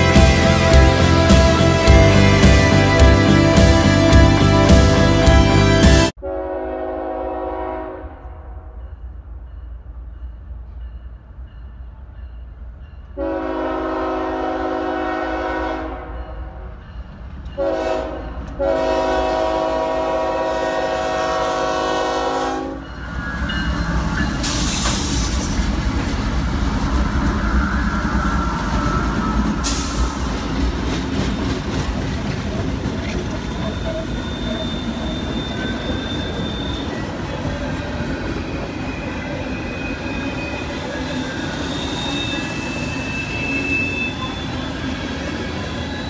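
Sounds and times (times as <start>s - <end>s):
diesel engines rumbling: 0.0s - 6.1s
locomotive air horn blasts: 0.0s - 8.3s, 13.2s - 16.2s, 17.6s - 22.9s
train wheels clattering over rails: 23.6s - 43.4s.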